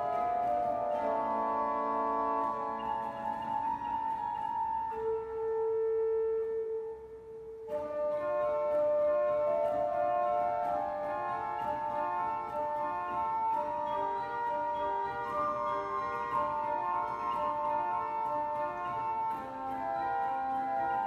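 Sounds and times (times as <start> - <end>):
pipe organ playing slow piece: 0.0 - 7.0, 7.6 - 21.0.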